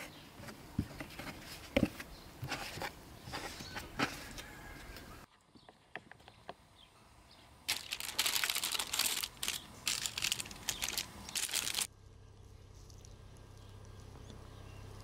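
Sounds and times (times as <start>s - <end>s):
baking paper crinkling in a tray: 7.7s - 11.9s.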